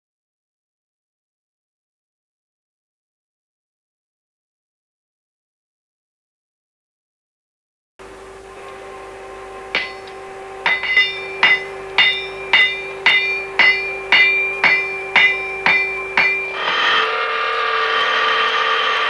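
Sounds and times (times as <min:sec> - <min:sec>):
steady hum: 0:08.0 - 0:19.0
hammer striking steel on anvil: 0:08.1 - 0:17.9.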